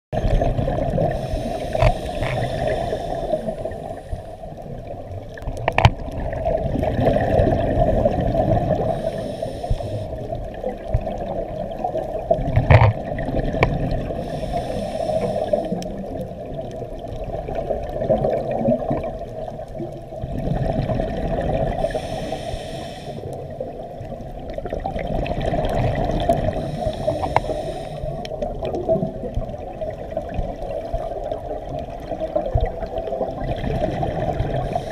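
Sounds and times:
bubbling exhale underwater: 0:00.2 - 0:22.7, 0:23.3 - 0:34.9
regulator hissing inhale: 0:01.1 - 0:04.7, 0:08.7 - 0:10.3, 0:14.1 - 0:16.2, 0:21.7 - 0:23.6, 0:26.4 - 0:28.4, 0:34.5 - 0:34.9.

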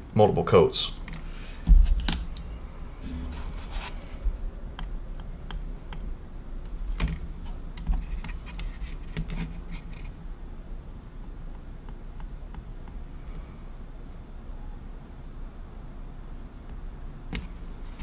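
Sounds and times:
low dull bumps: 0:03.0 - 0:04.5.

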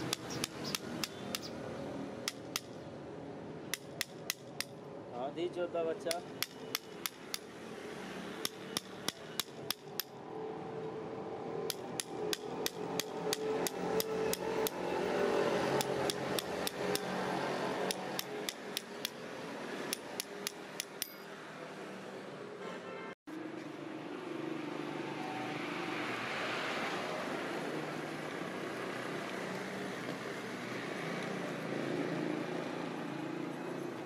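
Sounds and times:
hammer tapping on blade: 0:00.0 - 0:01.5, 0:02.3 - 0:02.8, 0:03.7 - 0:04.8, 0:06.1 - 0:07.5, 0:08.4 - 0:10.1, 0:11.7 - 0:14.8, 0:15.8 - 0:17.1, 0:17.8 - 0:19.2, 0:19.9 - 0:21.3.

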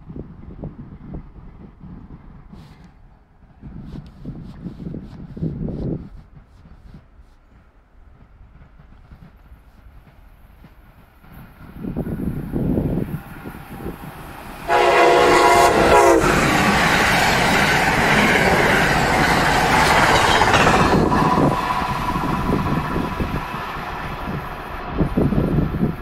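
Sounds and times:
train wheels rushing on rails: 0:00.1 - 0:26.0
train horn blast: 0:14.7 - 0:18.1.

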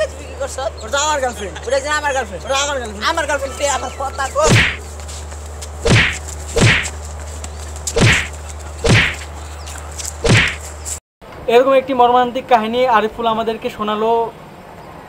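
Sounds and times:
steady low hum: 0:04.3 - 0:10.9
punch swoosh and hit: 0:04.5 - 0:04.8, 0:05.9 - 0:06.9, 0:08.0 - 0:09.2, 0:10.2 - 0:10.6.

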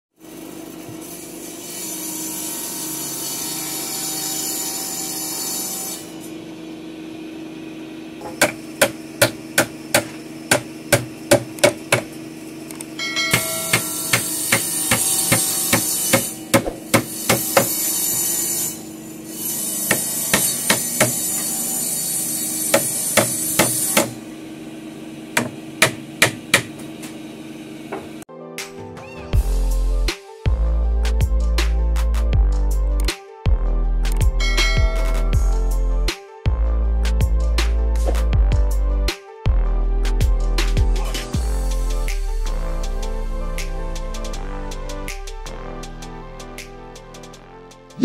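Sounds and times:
hammer driving nails into wood: 0:08.2 - 0:12.1.

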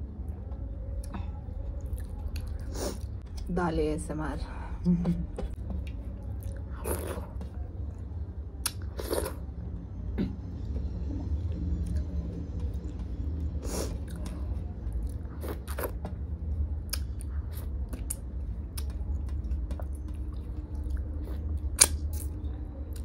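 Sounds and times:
low steady hum: 0:00.0 - 0:23.0
wet chewing and lip smacks: 0:16.8 - 0:23.0.

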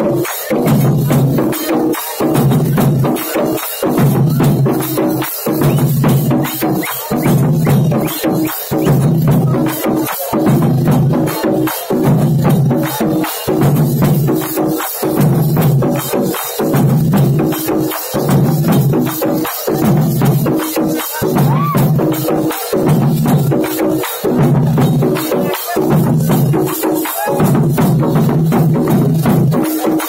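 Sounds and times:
large barrel drums beaten with sticks: 0:00.0 - 0:30.0.

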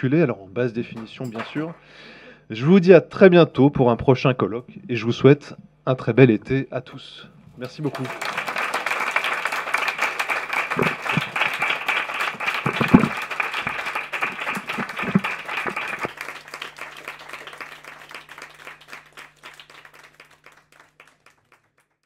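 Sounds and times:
audience applauding: 0:01.0 - 0:01.8, 0:07.6 - 0:22.0.

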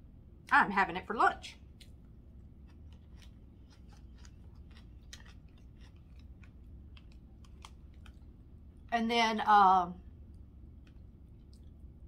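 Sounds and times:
person chewing food: 0:01.6 - 0:08.9, 0:10.2 - 0:12.0.

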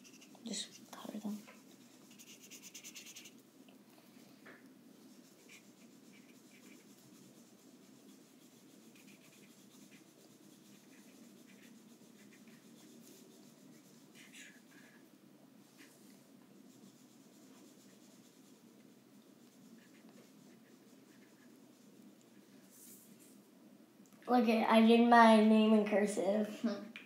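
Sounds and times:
marker strokes on paper: 0:00.0 - 0:03.4, 0:05.1 - 0:15.0, 0:15.7 - 0:23.4.

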